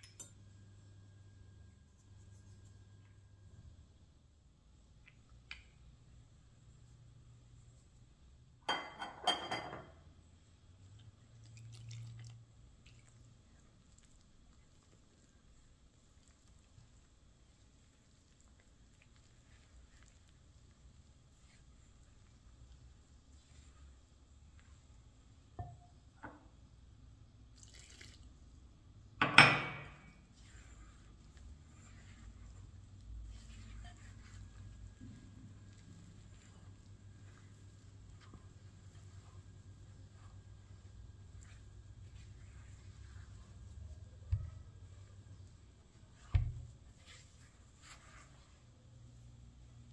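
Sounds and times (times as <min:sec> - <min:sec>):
glass clinking and scraping: 0:08.7 - 0:10.0
water splashing into dough: 0:10.8 - 0:15.1, 0:27.5 - 0:28.6
spatula scraping dough in bowl: 0:30.3 - 0:39.4.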